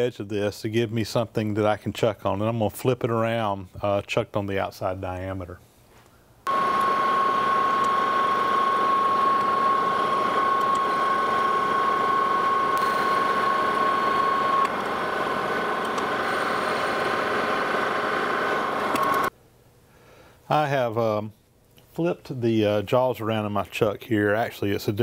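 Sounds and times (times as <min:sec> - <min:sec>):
high whine: 0:06.5 - 0:19.3
metal lathe cutting: 0:06.5 - 0:19.3.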